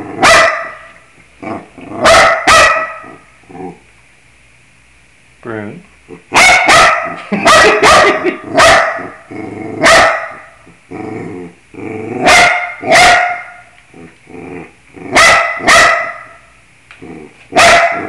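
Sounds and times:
dog barking: 0.2s - 0.9s, 2.0s - 3.2s, 6.3s - 9.2s, 9.8s - 10.6s, 12.2s - 13.7s, 15.1s - 16.4s, 17.5s - 18.0s.

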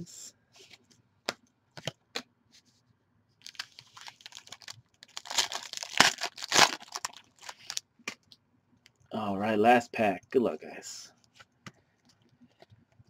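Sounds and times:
foil wrapper tearing: 3.4s - 7.8s.

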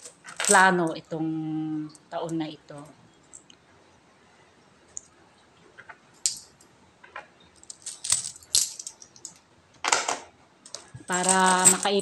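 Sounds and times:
coins clinking: 0.0s - 1.0s, 6.3s - 6.6s, 7.6s - 10.1s, 10.7s - 12.0s.

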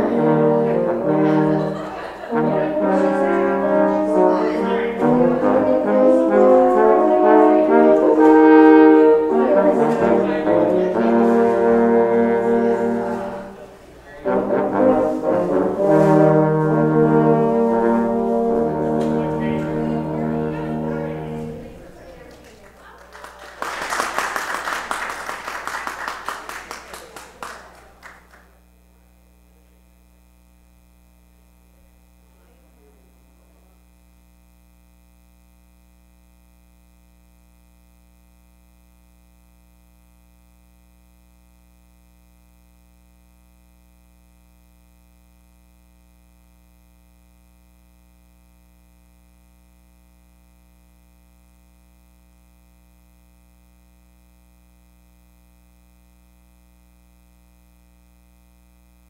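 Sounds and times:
low electrical hum: 0.0s - 59.0s.

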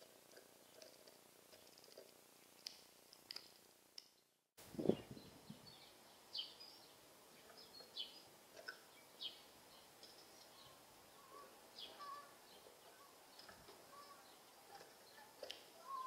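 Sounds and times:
songbirds chirping: 0.0s - 16.0s
outdoor hiss: 4.6s - 16.0s.

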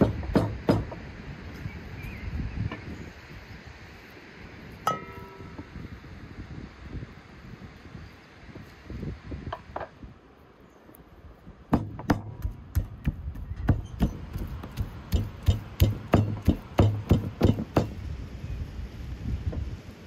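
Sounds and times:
cleaver chopping on wooden block: 0.0s - 1.0s, 11.7s - 18.0s.

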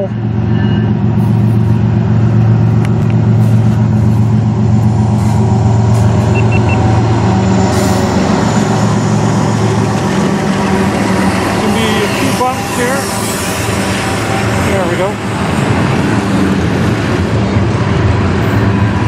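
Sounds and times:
locomotive engine drone: 0.0s - 19.0s.

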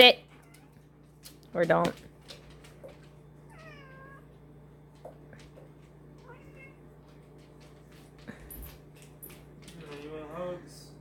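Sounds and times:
faint pet cries: 3.5s - 4.3s.

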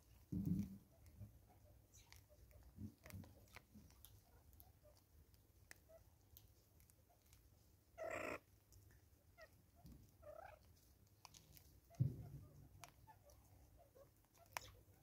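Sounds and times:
seeds clicking: 9.8s - 12.0s, 12.6s - 15.0s.

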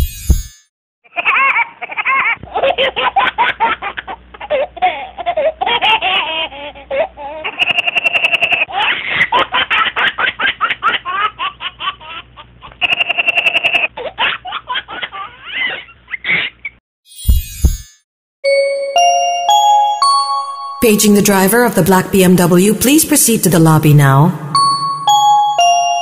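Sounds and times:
baby laughing: 1.1s - 16.8s
baby squealing: 12.7s - 14.4s, 15.0s - 16.8s.

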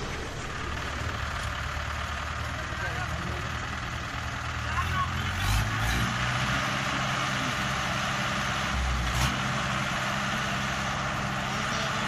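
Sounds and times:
tractor diesel engines running: 0.0s - 12.0s.

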